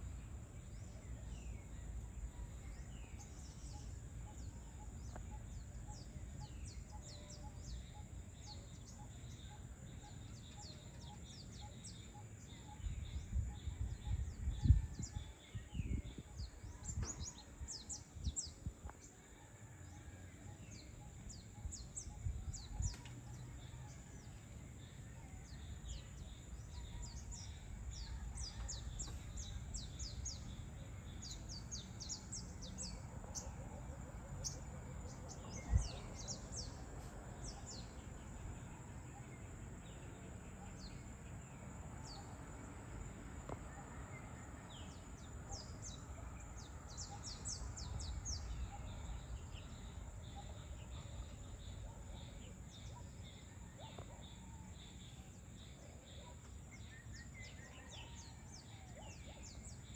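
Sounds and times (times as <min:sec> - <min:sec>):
wind gusts on microphone: 0:12.8 - 0:18.9.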